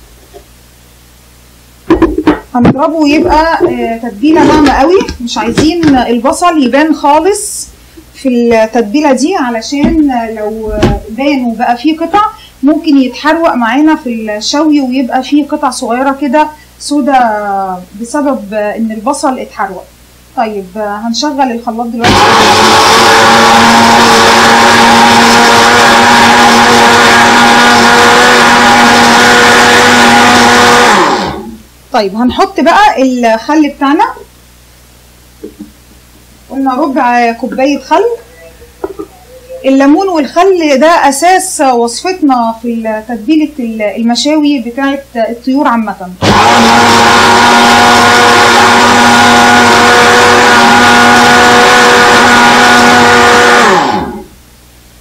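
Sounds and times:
blender motor winding down: 22.0s - 31.6s, 46.2s - 54.3s
blender running: 22.0s - 31.6s, 46.2s - 54.3s.

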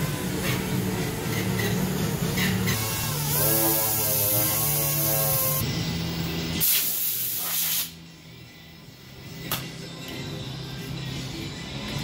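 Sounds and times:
orbital sander hissing: 2.8s - 5.6s.

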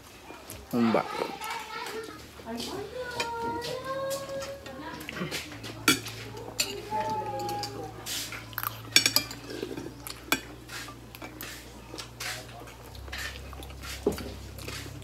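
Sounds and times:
cutlery clinking on plates: 3.2s - 14.9s.

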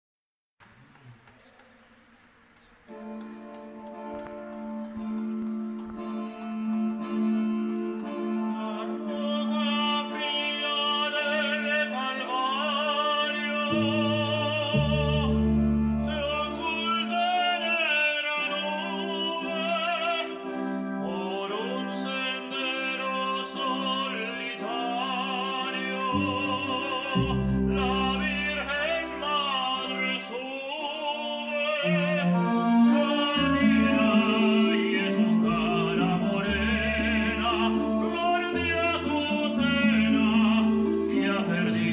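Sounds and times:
operatic singing with vibrato: 0.7s - 41.9s
low accompaniment chords: 2.9s - 17.7s, 25.0s - 41.9s.

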